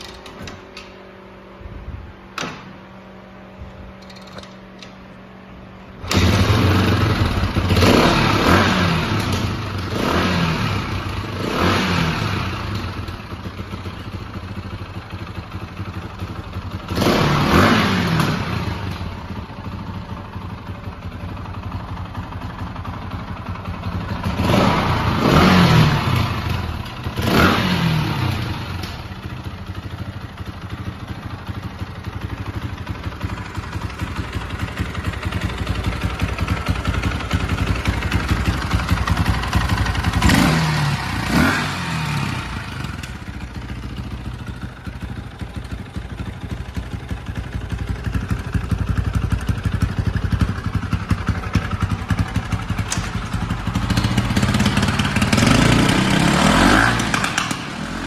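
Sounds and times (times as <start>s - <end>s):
engine revving: 6.0s - 12.8s, 16.9s - 19.0s, 24.3s - 28.9s, 38.9s - 43.1s, 52.4s - 58.0s
dirt bike engine idling: 12.1s - 17.8s, 18.4s - 27.4s, 28.1s - 58.0s.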